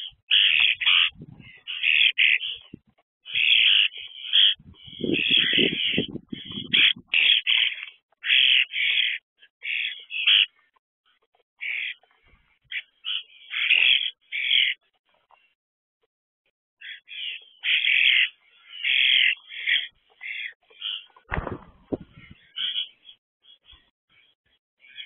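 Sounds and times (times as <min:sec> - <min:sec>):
starlings giving harsh scratchy calls: 0:00.0 - 0:10.7, 0:11.6 - 0:12.0, 0:12.7 - 0:14.9, 0:16.8 - 0:23.2.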